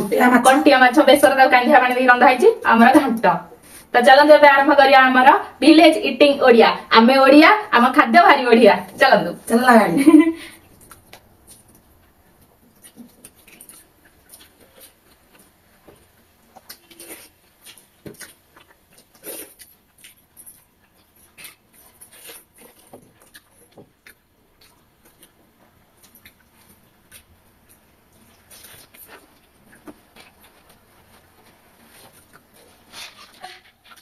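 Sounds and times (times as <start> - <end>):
quiet chewing: 10.5 - 34.0.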